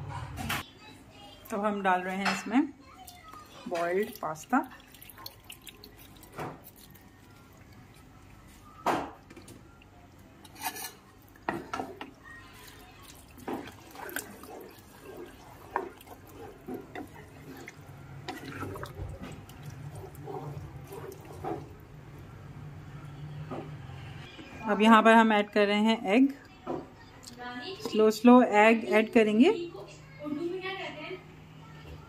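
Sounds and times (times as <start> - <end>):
pasta sloshing and stirring: 3.0 - 22.6.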